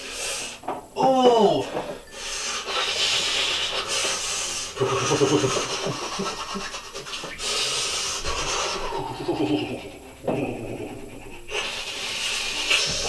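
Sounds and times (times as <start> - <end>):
man's hissing breaths: 0.0 - 0.7, 1.7 - 13.0
man moaning: 1.0 - 1.8, 8.9 - 11.0.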